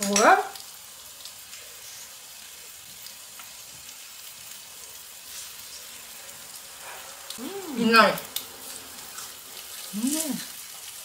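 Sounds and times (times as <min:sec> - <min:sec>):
pork sizzling in frying: 0:00.0 - 0:11.0.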